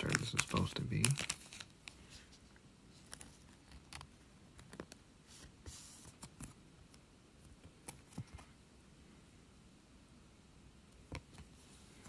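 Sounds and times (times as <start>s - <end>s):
trading cards clicking: 0.0s - 1.6s
card sliding rustle: 4.7s - 6.6s.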